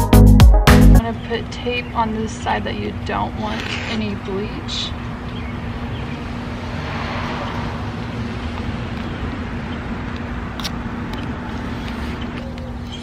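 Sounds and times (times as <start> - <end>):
outdoor background rumble: 0.9 - 13.0
low hum: 1.0 - 12.9.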